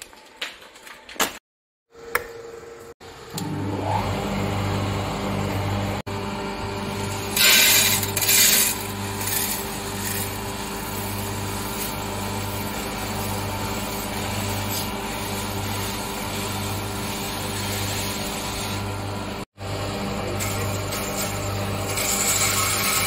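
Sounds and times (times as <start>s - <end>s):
electric motor hum: 3.0s - 23.0s
lentils pouring into metal drum: 7.3s - 18.7s.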